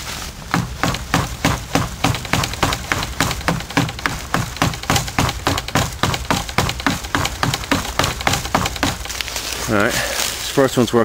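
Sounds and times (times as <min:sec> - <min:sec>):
stone axe chopping wood: 0:00.5 - 0:09.3.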